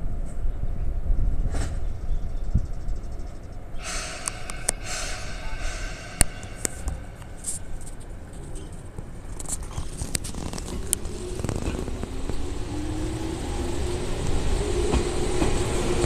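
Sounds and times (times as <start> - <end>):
electric train rumble: 3.7 - 16.0
train hiss: 3.8 - 8.2.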